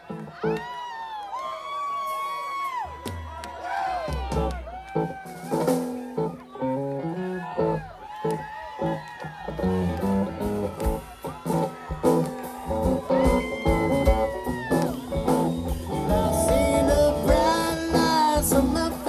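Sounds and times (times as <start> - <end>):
live rock band playing: 1.9 - 19.0
man singing: 16.0 - 19.0.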